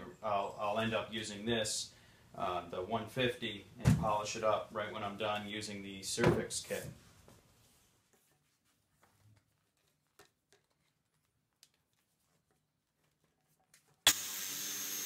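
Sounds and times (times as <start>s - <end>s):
detail sander running: 14.1s - 15.0s.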